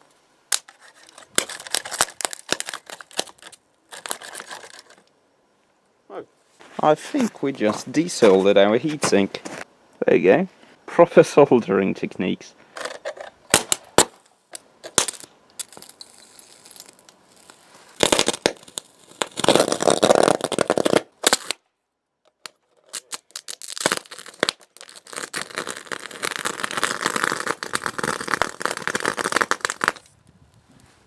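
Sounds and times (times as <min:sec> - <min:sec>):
electric arc snaps: 0:13.5 - 0:21.6, 0:22.4 - 0:30.2
electric arc crackling and sputtering: 0:14.9 - 0:21.6, 0:22.9 - 0:30.1.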